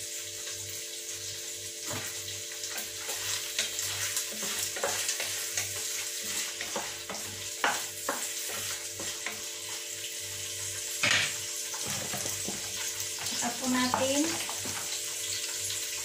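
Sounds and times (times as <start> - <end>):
prawns sizzling in a pot: 0.0 - 16.0
spatula scraping and knocking pot: 2.7 - 9.7.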